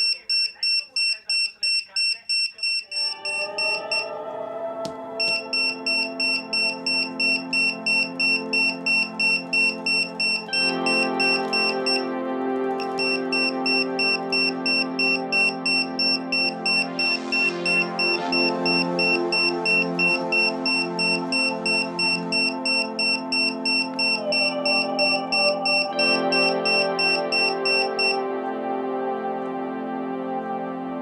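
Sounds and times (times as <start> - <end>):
background music with held chords: 2.9 - 31.0
piezo buzzer beeping rapidly: 5.2 - 12.1, 12.8 - 28.2.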